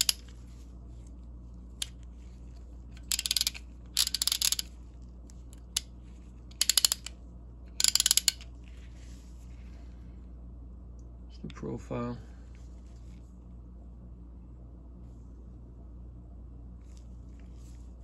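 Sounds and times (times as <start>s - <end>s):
ratchet clicking: 0.0s - 0.3s, 3.0s - 4.7s, 6.5s - 7.1s, 7.8s - 8.4s.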